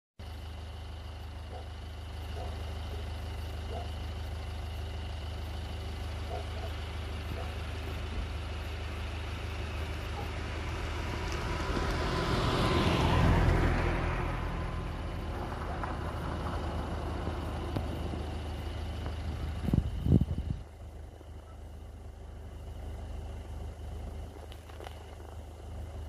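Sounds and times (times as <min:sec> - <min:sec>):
low engine hum: 0:00.2 - 0:26.0
motor vehicle passing: 0:06.2 - 0:26.0.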